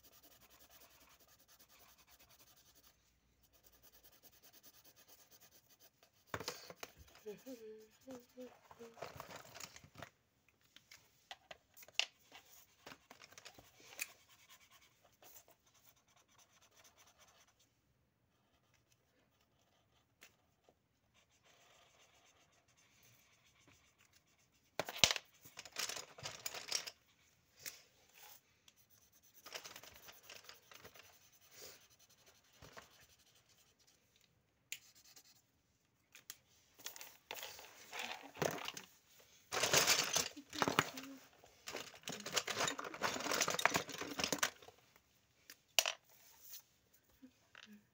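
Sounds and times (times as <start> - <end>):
marker pens scratching on paper: 0.0 - 9.4, 12.1 - 17.6, 18.4 - 26.9, 28.1 - 34.1, 34.8 - 35.5
pens and caps handled: 6.2 - 7.5, 8.1 - 14.2, 24.8 - 27.0, 29.4 - 31.2, 36.1 - 44.9.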